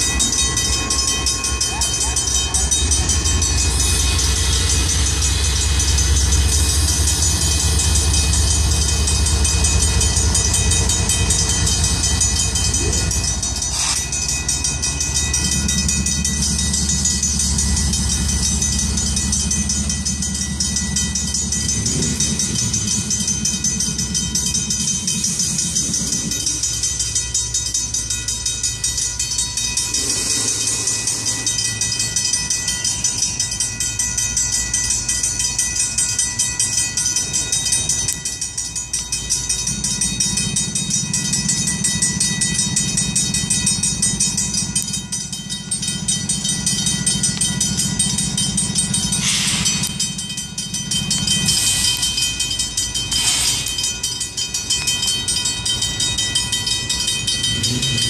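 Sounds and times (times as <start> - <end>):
crossing bells ringing: 0.0 - 58.0
freight train rolling: 0.0 - 58.0
locomotive engine drone: 0.0 - 58.0.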